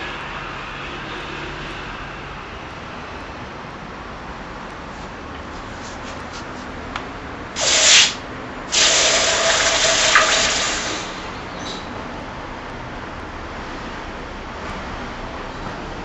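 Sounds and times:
hot metal hissing in water: 0:07.6 - 0:11.9.

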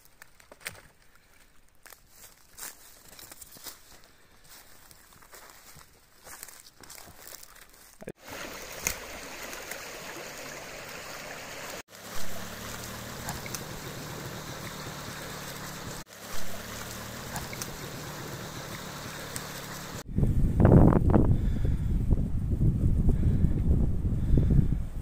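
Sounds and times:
stream rushing and splashing: 0:08.2 - 0:20.0.

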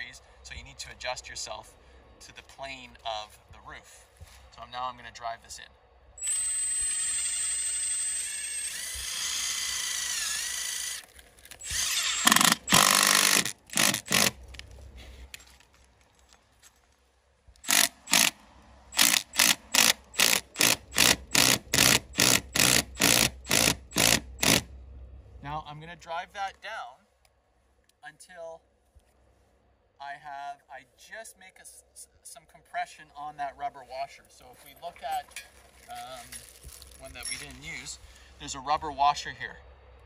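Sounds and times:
impact driver driving screw: 0:06.2 - 0:14.4, 0:17.6 - 0:24.7.

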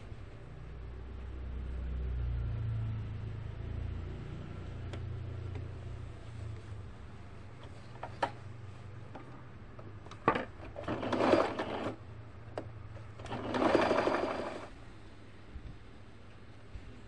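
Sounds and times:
sewing machine stitching: 0:10.1 - 0:12.1, 0:13.0 - 0:14.8.

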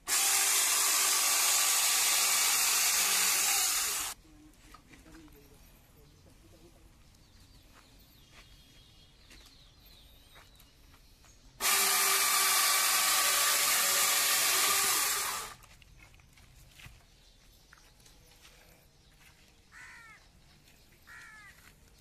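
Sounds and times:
electric chainsaw cutting log: 0:00.0 - 0:04.2, 0:11.6 - 0:15.6.

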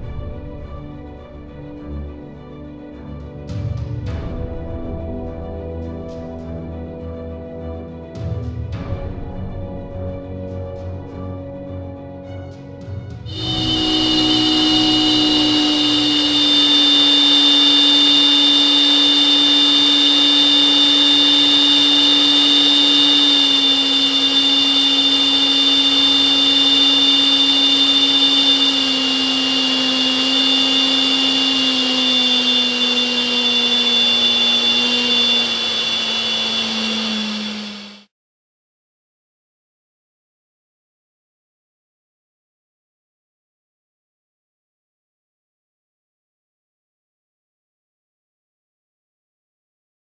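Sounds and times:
electric ducted fan whine: 0:13.3 - 0:38.1
high whistling tones: 0:13.3 - 0:38.1.

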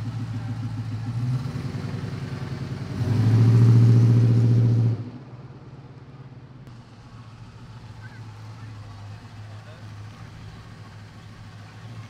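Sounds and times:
truck engine rumbling and accelerating: 0:00.0 - 0:12.0.

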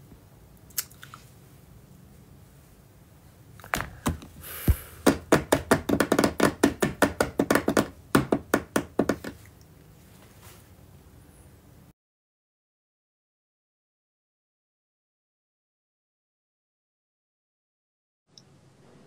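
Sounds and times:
quick uneven taps: 0:03.7 - 0:09.5
short hiss: 0:04.4 - 0:05.0.

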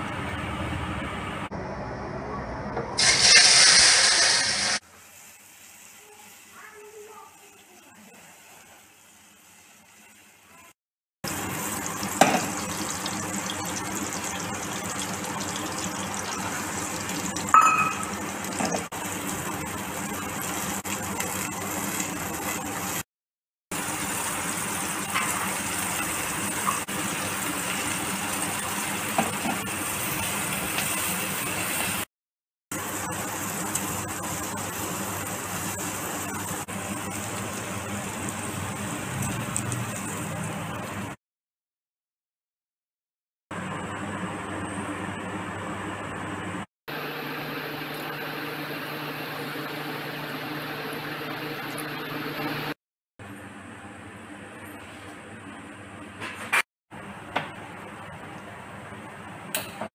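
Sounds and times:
food deep-frying in oil: 0:03.0 - 0:23.1, 0:23.7 - 0:32.1, 0:32.7 - 0:41.2.

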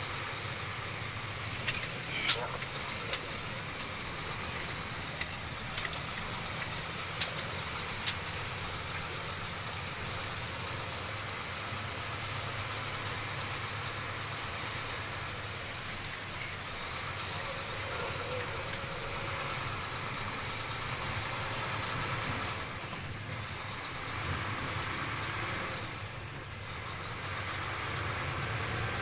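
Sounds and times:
engine and road hum: 0:00.0 - 0:29.0
tyres hissing on wet road: 0:00.0 - 0:29.0.

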